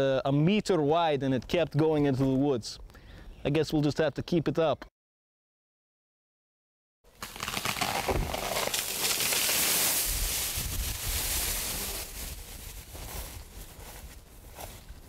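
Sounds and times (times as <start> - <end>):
leafy branches crackling and rustling: 7.1 - 15.0.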